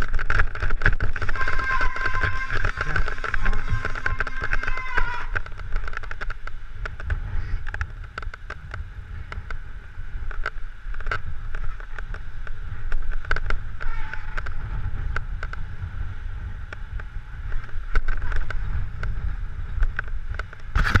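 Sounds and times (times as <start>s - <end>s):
bike wheels knocking on stones: 0.0s - 9.6s
wind rumble on camera: 0.0s - 21.0s.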